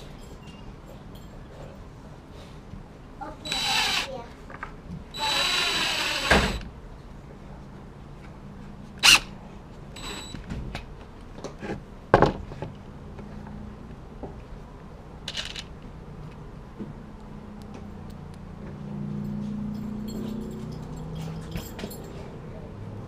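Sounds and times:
cordless drill driving screw: 3.5 - 4.1, 5.1 - 6.7, 9.0 - 9.3, 10.0 - 10.4
tools clattering and knocking: 15.3 - 15.7, 19.3 - 22.3.

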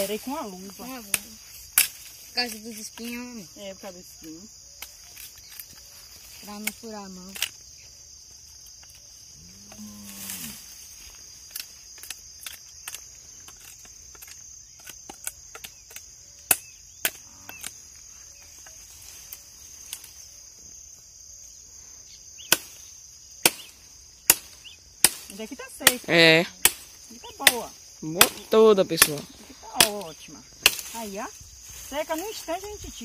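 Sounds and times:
high insect buzz: 0.0 - 33.0
machete hacking dry branch: 1.1 - 2.2, 22.5 - 22.8, 23.4 - 26.0, 26.6 - 31.0.

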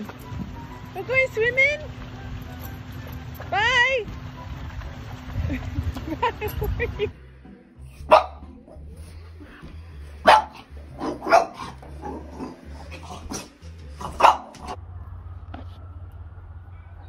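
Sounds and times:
dog barking: 8.0 - 8.6, 10.2 - 12.2, 13.3 - 14.8.

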